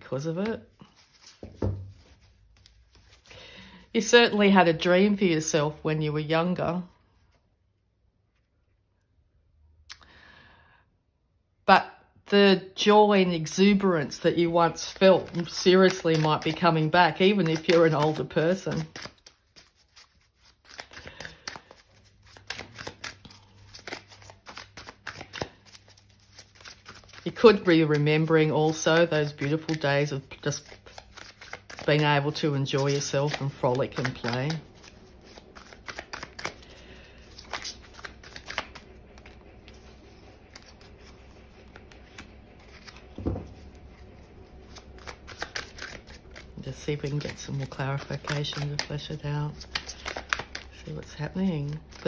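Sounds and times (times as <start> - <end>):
cards being shuffled: 0.2 - 3.8, 14.5 - 52.0
soft thud: 1.4 - 2.0.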